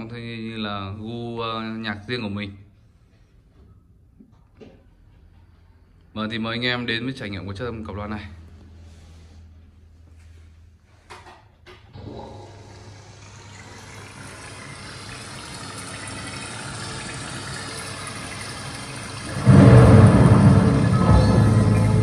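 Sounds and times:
wash of sound: 12.6s - 22.0s.

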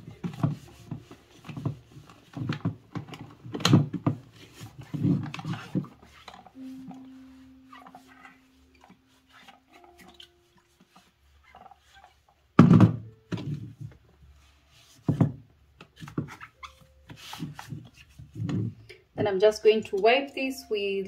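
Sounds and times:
high whine rising in pitch: 6.6s - 10.2s.

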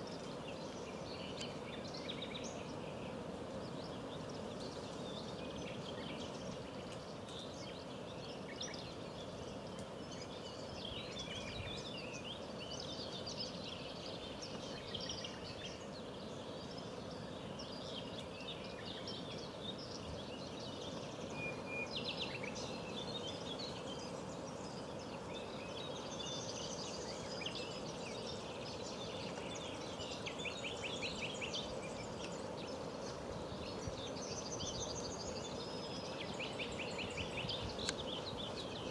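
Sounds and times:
low background hiss: 0.0s - 38.9s
songbirds chirping and trilling: 0.0s - 38.9s.

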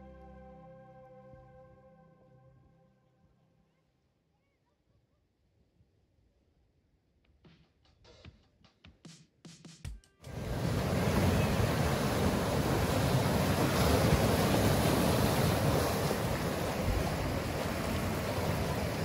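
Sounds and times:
surf breaking on rocks: 10.3s - 19.0s
wind buffeting microphone: 10.3s - 19.0s.

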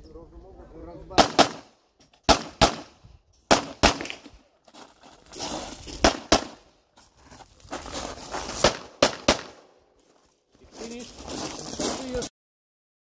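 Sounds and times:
pistol shots: 1.2s - 4.4s, 6.0s - 6.6s, 8.6s - 9.7s
footsteps crunching on gravel: 4.1s - 9.0s, 9.9s - 12.3s.

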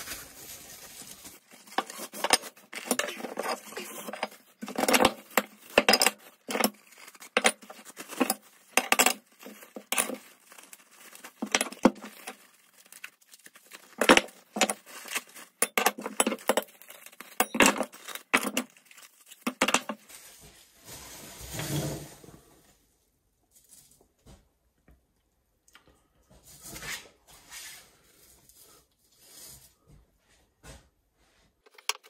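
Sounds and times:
bubble wrap crinkling: 0.0s - 4.6s, 5.2s - 15.6s, 17.9s - 21.6s
metal parts clinking on wood: 1.7s - 10.3s, 13.9s - 18.7s.

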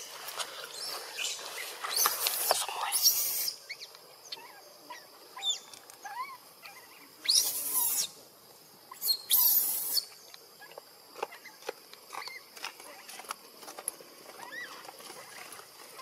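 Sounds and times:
baby monkey squeaking: 3.0s - 8.1s, 8.9s - 10.1s.

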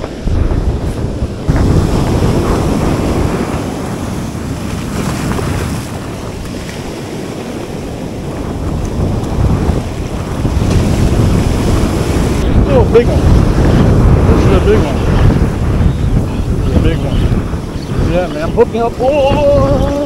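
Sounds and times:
surf breaking: 0.0s - 20.0s
wind buffeting microphone: 0.0s - 20.0s.

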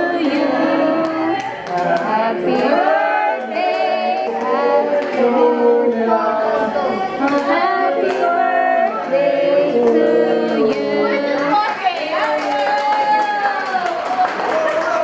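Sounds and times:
voices singing together: 0.0s - 11.9s
hands clapping: 1.0s - 2.8s, 11.4s - 15.0s.

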